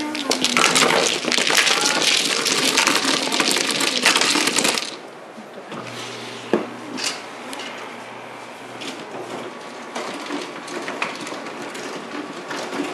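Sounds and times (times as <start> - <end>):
plastic tiles clattering: 0.0 - 5.0
table mechanism humming: 0.0 - 12.9.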